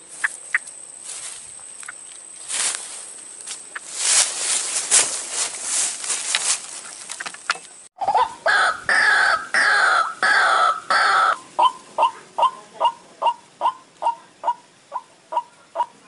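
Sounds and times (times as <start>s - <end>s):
rustling hiss: 0.0s - 7.9s
harsh repeated bird calls: 6.8s - 16.0s.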